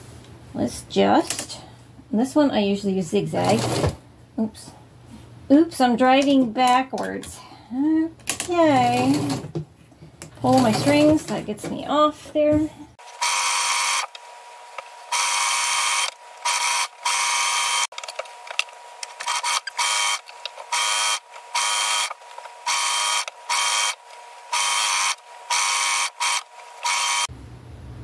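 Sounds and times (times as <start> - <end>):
sewing machine stitching: 3.4 - 4.0, 8.3 - 9.6, 10.4 - 11.3, 19.2 - 27.3.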